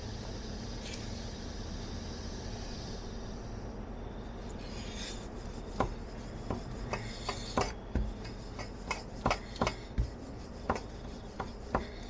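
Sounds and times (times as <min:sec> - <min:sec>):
rolling pin rubbing on board: 0:04.7 - 0:12.0
rolling pin knocking: 0:05.7 - 0:12.0.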